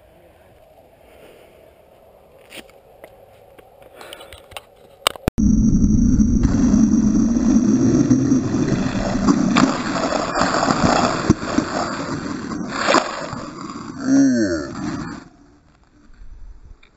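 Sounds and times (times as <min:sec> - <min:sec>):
longboard wheels rolling on asphalt: 0:04.5 - 0:16.9
wind rushing over microphone: 0:05.4 - 0:14.0
slide pucks scraping road: 0:08.3 - 0:16.0.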